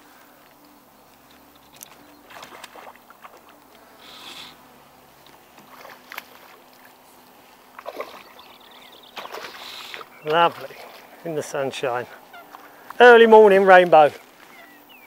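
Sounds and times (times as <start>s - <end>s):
fish splashing at surface: 2.3s - 3.5s, 7.7s - 8.4s, 9.2s - 11.1s.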